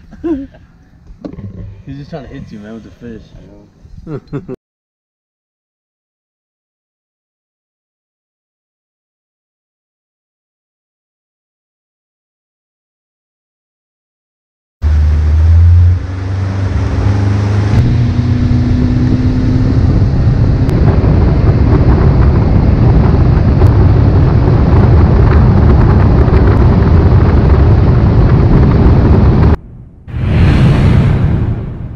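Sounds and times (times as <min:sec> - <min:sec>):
boat engine drone: 0:14.8 - 0:29.8
wind rumble on microphone: 0:14.8 - 0:31.9.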